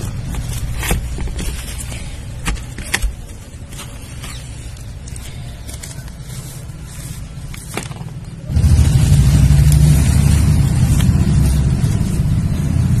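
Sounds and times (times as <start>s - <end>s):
dry dirt crunching by hand: 0.0s - 13.0s
loud low rumble: 8.4s - 13.0s.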